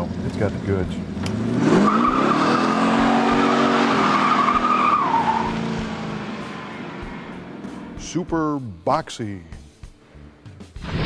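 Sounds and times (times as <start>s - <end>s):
car engine revving: 0.0s - 8.2s
tires squealing: 1.3s - 8.0s.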